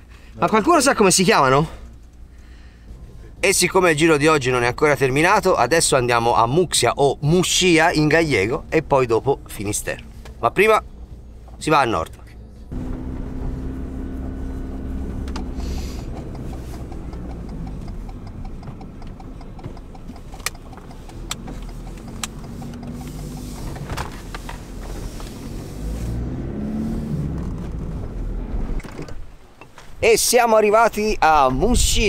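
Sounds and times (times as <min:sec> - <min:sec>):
car engine and road rumble: 0:00.0 - 0:32.0
sharp clicks: 0:15.2 - 0:24.6.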